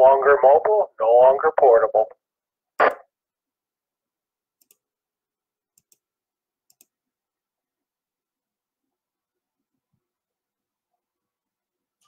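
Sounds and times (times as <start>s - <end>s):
computer mouse clicks: 4.6s - 4.8s, 5.8s - 6.0s, 6.7s - 7.0s.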